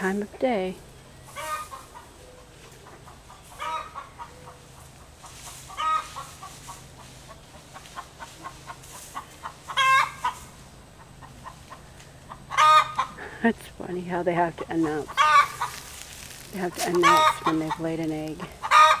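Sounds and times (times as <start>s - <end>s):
hen clucking: 0.0s - 19.0s
hen cackling loudly: 2.8s - 4.6s, 5.6s - 10.5s, 11.1s - 13.3s, 14.8s - 15.9s, 16.7s - 19.0s.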